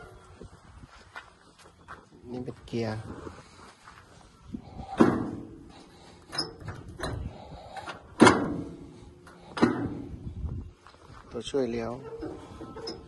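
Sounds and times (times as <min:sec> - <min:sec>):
metal levers clanking: 0:04.8 - 0:10.2, 0:11.8 - 0:13.0.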